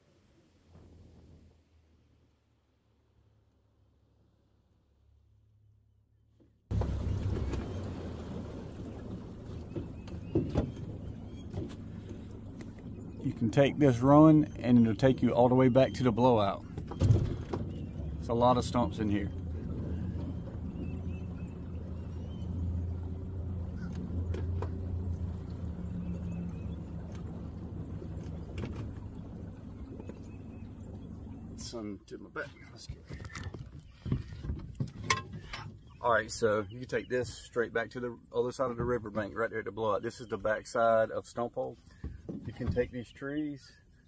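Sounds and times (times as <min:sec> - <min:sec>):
water noise: 0:00.0 - 0:05.7, 0:06.7 - 0:44.0
boat motor rumble: 0:00.0 - 0:44.0
wind: 0:00.0 - 0:44.0
knocks against hull: 0:06.7 - 0:12.9, 0:16.6 - 0:18.3, 0:23.8 - 0:25.0, 0:27.0 - 0:29.2, 0:32.9 - 0:35.9, 0:41.9 - 0:43.0.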